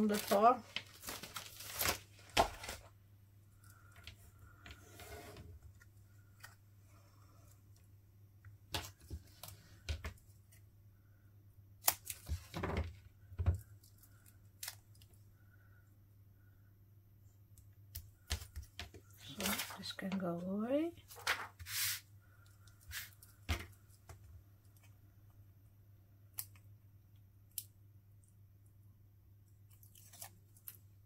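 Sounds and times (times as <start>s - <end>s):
paper rustling: 0.0s - 2.9s, 18.3s - 20.2s, 21.0s - 22.0s.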